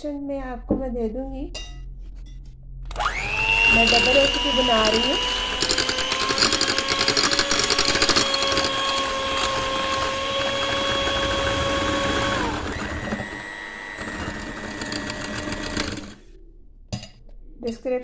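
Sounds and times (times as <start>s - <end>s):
beaters whisking in glass bowl: 2.9s - 16.2s
electric hand mixer whining: 2.9s - 16.2s.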